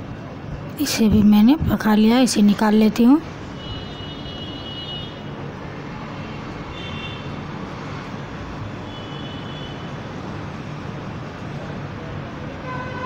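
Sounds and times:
background rumble and hiss: 0.0s - 3.4s.

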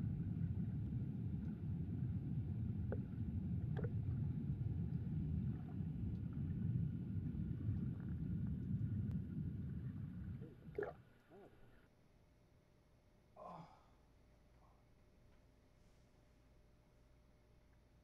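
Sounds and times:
muffled underwater rumble: 0.0s - 11.8s.

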